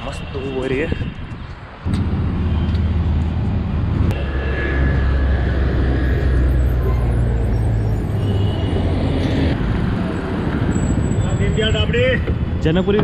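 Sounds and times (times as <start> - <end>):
general traffic noise: 0.0 - 13.0
bus engine rumble: 1.9 - 11.9.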